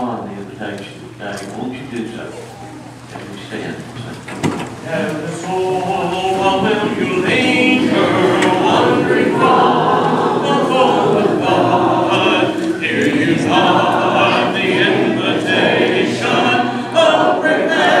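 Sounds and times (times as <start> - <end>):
congregation singing a hymn: 4.3 - 18.0.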